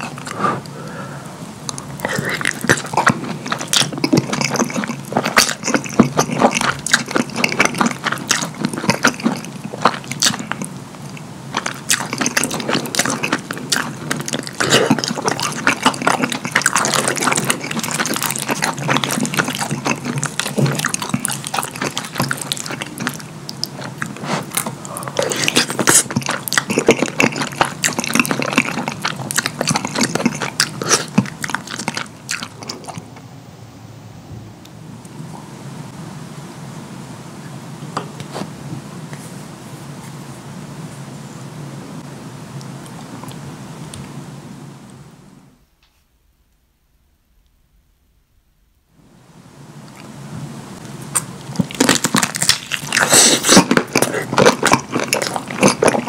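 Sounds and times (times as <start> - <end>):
wet chewing and lip smacking: 1.7 - 33.2, 50.8 - 56.0.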